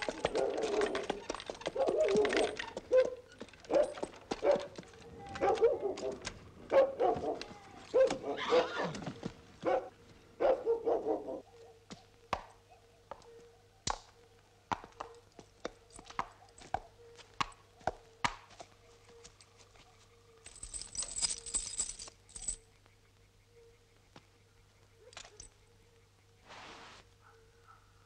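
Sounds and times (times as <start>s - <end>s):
dog barking: 1.8s - 8.7s, 9.6s - 11.9s, 27.2s - 28.0s
hissing rustle: 26.4s - 27.1s.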